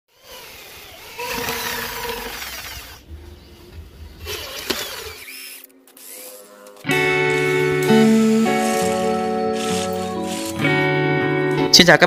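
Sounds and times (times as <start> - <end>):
electric drill boring steel: 0.1 - 3.1, 4.2 - 10.7.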